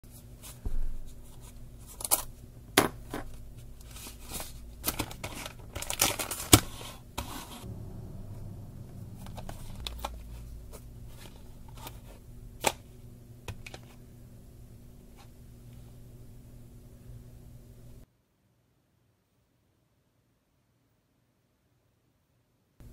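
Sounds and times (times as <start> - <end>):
plastic wrappers rustling: 1.3 - 2.4, 3.1 - 7.6.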